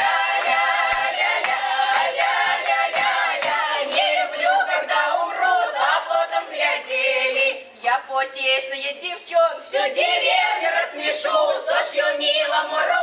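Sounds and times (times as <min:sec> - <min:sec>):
hand claps: 0:00.0 - 0:04.6
mixed choir singing unaccompanied: 0:00.0 - 0:07.8, 0:09.3 - 0:13.0.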